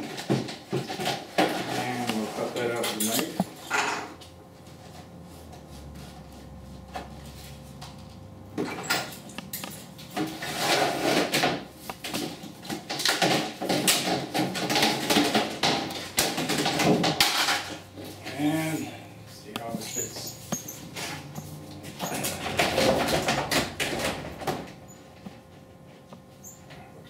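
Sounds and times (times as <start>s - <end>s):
plastic panel rattling and scraping: 0.0s - 3.5s, 10.2s - 17.8s, 21.9s - 24.8s.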